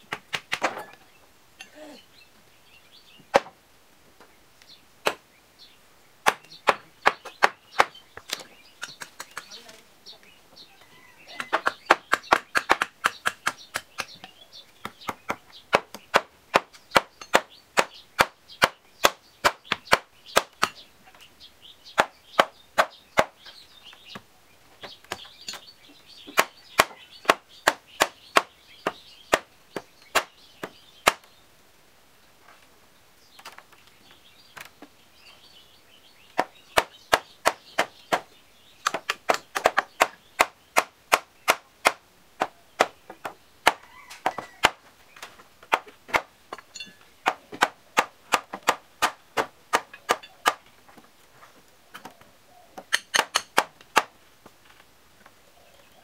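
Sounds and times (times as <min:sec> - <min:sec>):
claw hammer striking wood: 0:06.2 - 0:09.4, 0:11.4 - 0:20.8, 0:26.3 - 0:29.5, 0:36.4 - 0:44.8, 0:45.7 - 0:50.6, 0:52.8 - 0:54.1.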